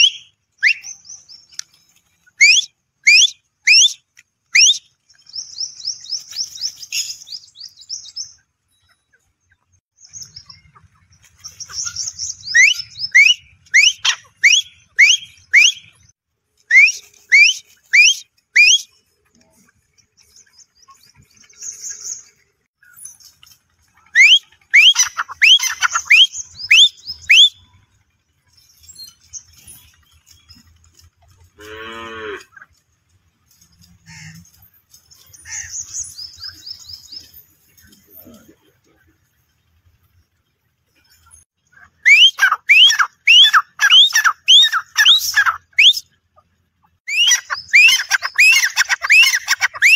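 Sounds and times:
francolins whistled calls: 0.0 - 9.2, 10.0 - 16.1, 16.7 - 19.0, 20.2 - 27.8, 35.1 - 37.4, 42.0 - 46.2, 47.0 - 49.9
cow mooing: 31.6 - 32.6.

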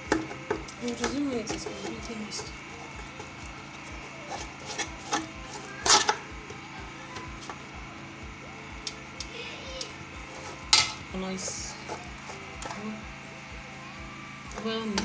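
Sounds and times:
steady background hum: 0.0 - 15.0
metal spoon scraping cooking pot: 0.2 - 3.1, 3.9 - 6.3.

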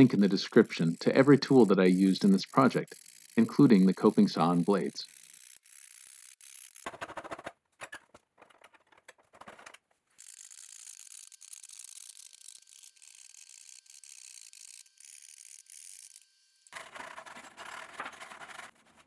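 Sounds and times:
coping saw cutting thin wood: 0.0 - 5.2.

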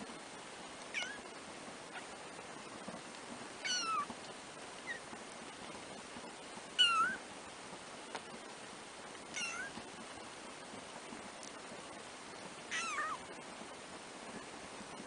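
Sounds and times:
faint kitten squeak: 0.9 - 1.3, 3.6 - 4.1, 6.8 - 7.2, 9.3 - 9.8, 12.7 - 13.2
kittens mewing: 12.7 - 13.2.

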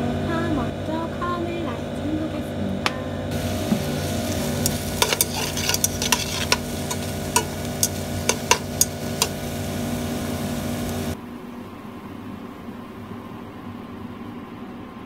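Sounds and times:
onions sizzling in oil: 3.3 - 11.2
utensil clicking on pot: 3.7 - 9.6.

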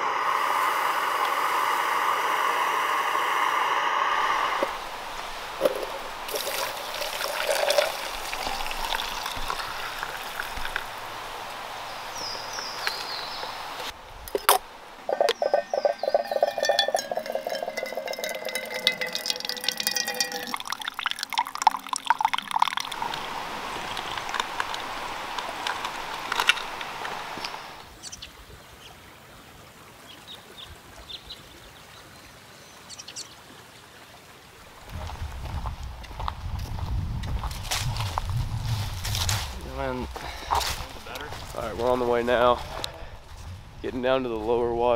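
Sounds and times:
coffee pouring into metal cup: 5.6 - 10.9, 15.1 - 24.9
faint high chirps: 15.1 - 20.6.

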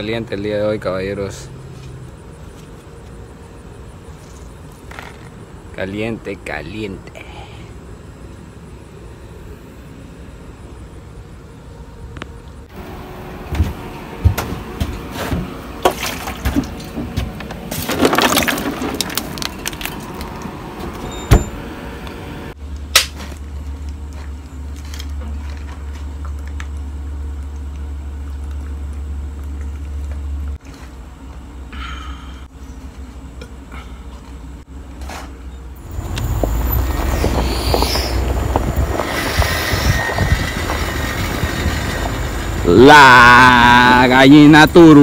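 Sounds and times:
ice and bottles clattering: 17.7 - 20.3
steady low rumble: 35.6 - 42.8.

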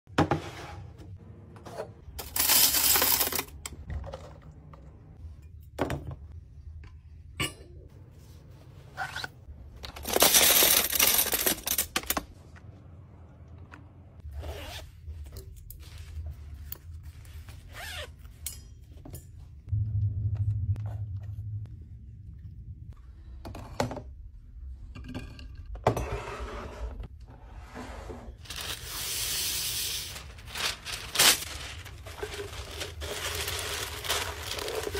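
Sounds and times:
paper pulled off roll rustling: 28.4 - 34.9.

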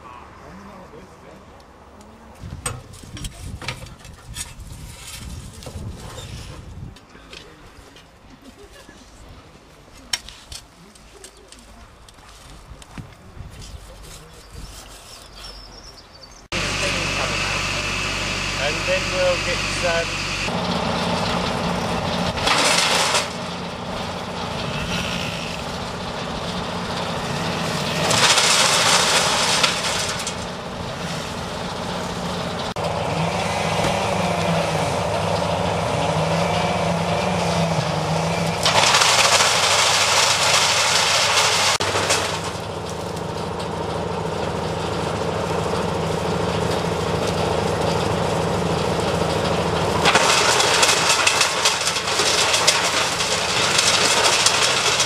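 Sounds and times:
wood chipper engine running: 16.5 - 55.0
wood chipper shredding branches: 16.5 - 55.0.

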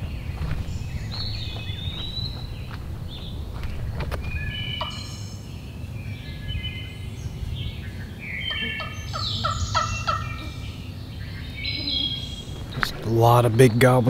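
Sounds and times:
songbirds chirping: 0.0 - 14.0
turkey yelping: 4.8 - 5.2, 8.5 - 10.7.

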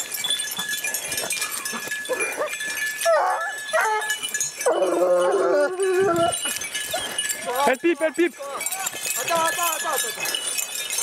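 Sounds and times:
hounds baying: 1.1 - 9.2
dog howling: 3.0 - 6.5.

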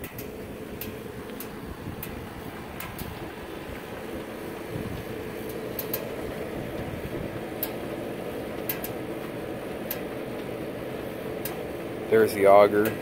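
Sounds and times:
sharp clicks: 0.0 - 3.2, 5.0 - 6.2
motor drive humming: 0.0 - 13.0.

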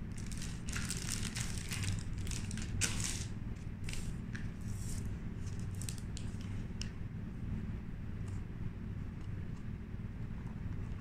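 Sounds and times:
steady low hum: 0.0 - 11.0
card crackling: 0.1 - 4.1
packaging pouch crinkling: 0.1 - 4.2.

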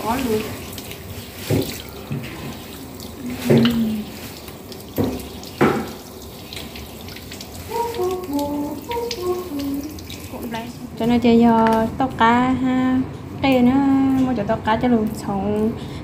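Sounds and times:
faucet running into metal sink: 0.0 - 10.8
hands washing under water: 0.0 - 10.8.

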